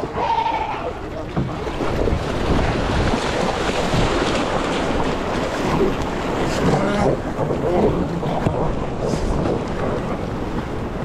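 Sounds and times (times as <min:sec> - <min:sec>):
shallow surf sloshing: 0:00.0 - 0:11.0
wind buffeting microphone: 0:01.0 - 0:11.0.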